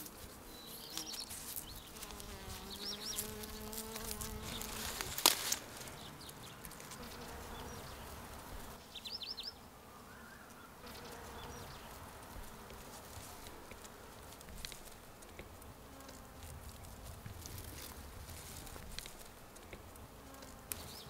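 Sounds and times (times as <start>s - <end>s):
bee buzzing: 0.0s - 21.0s
faint insect buzzing: 0.0s - 21.0s
bird chirp: 0.5s - 2.0s, 2.6s - 3.7s, 8.8s - 12.0s.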